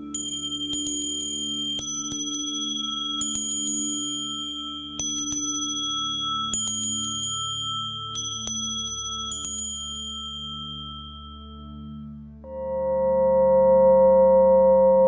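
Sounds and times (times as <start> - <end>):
bright bell tones: 0.0 - 12.4
singing bowl humming: 0.0 - 15.0.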